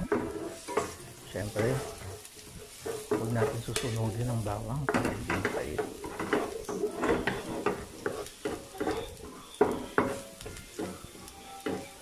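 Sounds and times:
garlic sizzling in oil: 0.0s - 12.0s
wooden spatula scraping a pan: 0.0s - 12.0s
sharp knocks on a pan: 4.9s - 11.9s.

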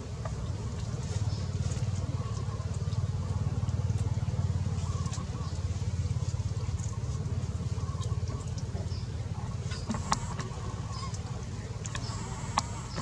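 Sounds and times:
faint ticks: 9.7s - 13.0s
small motor running: 11.9s - 13.0s.

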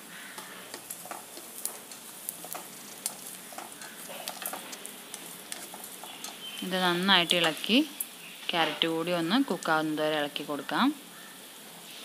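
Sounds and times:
vegetables sizzling in a pot: 0.0s - 12.0s
spatula scraping and tapping pan: 0.2s - 7.7s.

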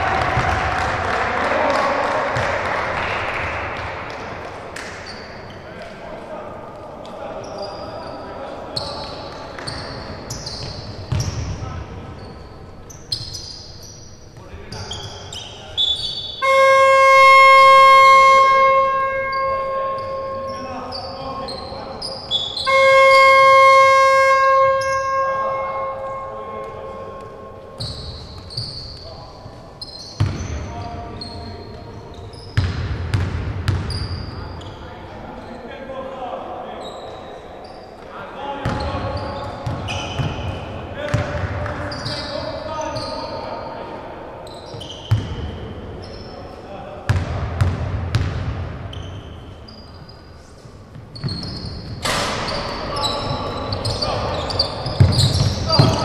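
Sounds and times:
shoe squeaks: 5.0s - 5.8s, 7.4s - 11.5s, 12.1s - 32.7s, 33.7s - 35.7s, 36.7s - 40.7s, 41.8s - 43.8s, 44.4s - 46.6s, 48.9s - 56.0s
scoreboard horn tone: 16.4s - 20.9s, 22.6s - 27.9s
basketball bouncing on hardwood: 55.0s - 56.0s.

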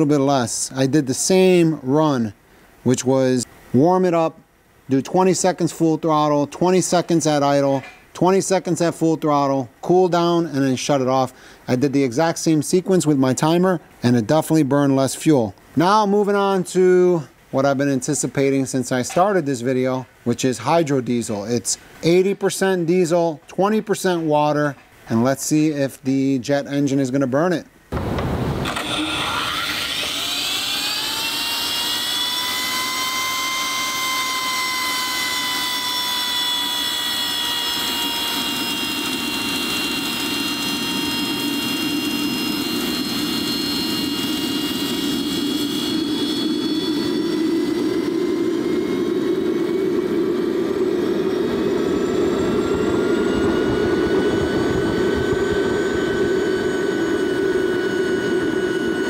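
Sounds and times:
combustion rumble: 27.9s - 30.0s, 47.1s - 57.8s
turbine engine whine: 27.9s - 59.0s.

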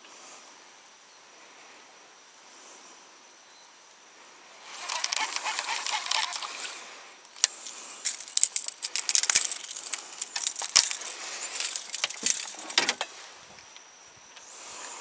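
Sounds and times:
fishing tackle clicking and rattling: 4.7s - 13.8s.

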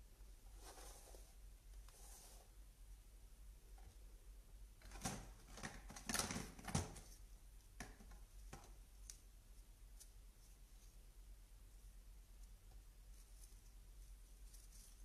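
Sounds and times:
plastic parts clicking and knocking: 4.8s - 7.1s.

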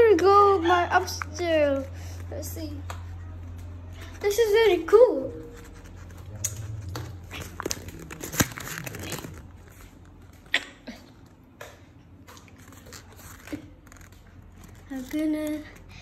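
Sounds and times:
paper rustling: 2.8s - 10.5s, 12.3s - 15.7s.

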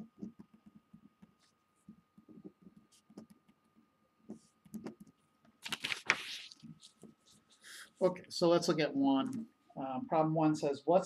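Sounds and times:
faint high hum: 0.0s - 11.0s
hand bumping page: 5.6s - 6.6s
paper rustling: 5.6s - 7.8s.

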